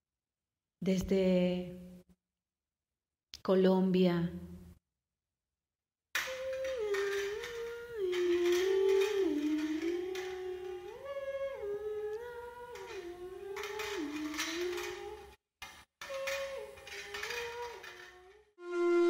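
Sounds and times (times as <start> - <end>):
person humming a melody: 6.2 - 15.4, 16.0 - 19.0.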